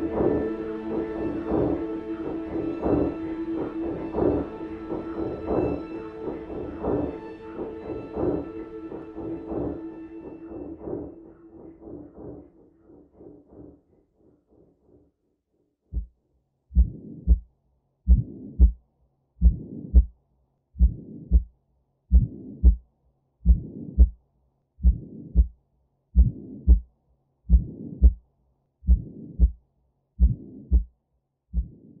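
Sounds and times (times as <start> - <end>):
slow heartbeat: 0.0 - 13.9, 15.9 - 17.5, 18.1 - 18.8, 19.4 - 20.2, 20.8 - 21.5, 22.1 - 22.8, 23.4 - 24.2, 24.8 - 25.6, 26.2 - 26.9, 27.5 - 28.2, 28.8 - 29.6, 30.2 - 30.9, 31.5 - 32.0.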